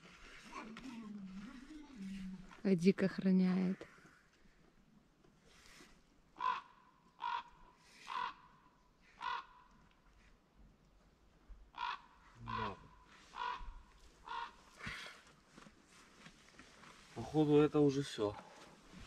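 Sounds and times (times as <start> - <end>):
crow cawing: 6.4 - 9.7, 11.7 - 15.2.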